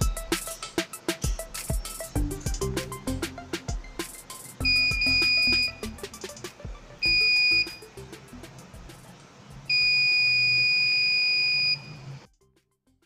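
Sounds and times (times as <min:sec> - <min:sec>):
high-pitched buzzer beep: 0:04.6 - 0:05.9, 0:07.0 - 0:07.9, 0:09.7 - 0:12.0.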